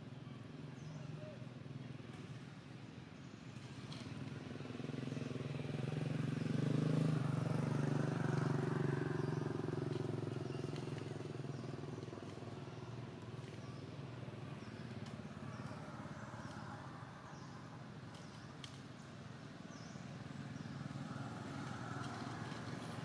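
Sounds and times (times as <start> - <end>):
vehicle engine passing by: 3.6 - 18.0, 19.8 - 23.0.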